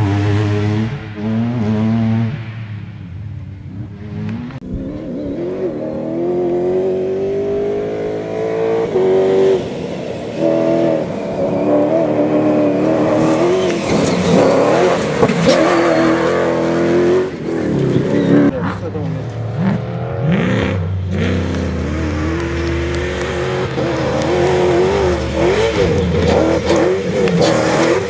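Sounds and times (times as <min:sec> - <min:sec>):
engine accelerating hard: 0:00.0 - 0:28.0.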